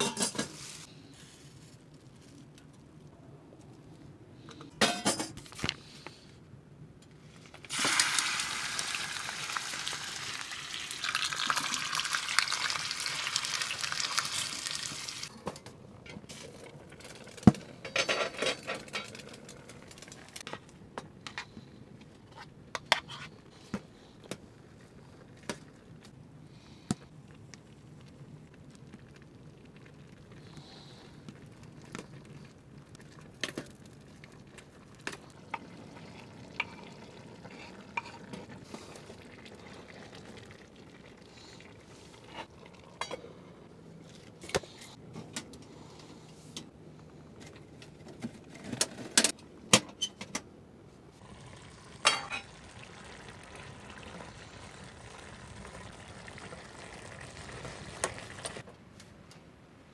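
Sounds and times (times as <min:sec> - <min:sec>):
metal clanks of pot lid: 0:00.0 - 0:00.5
vegetables sizzling in a pot: 0:07.7 - 0:15.3, 0:51.2 - 0:58.6.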